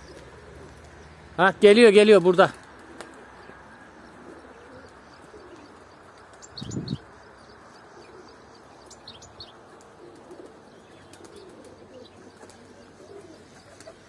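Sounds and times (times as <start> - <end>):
wings fluttering: 0.0 - 1.1, 2.1 - 3.4, 9.4 - 14.0
pigeons cooing: 0.0 - 1.3, 2.5 - 14.0
small birds chirping: 0.0 - 14.0.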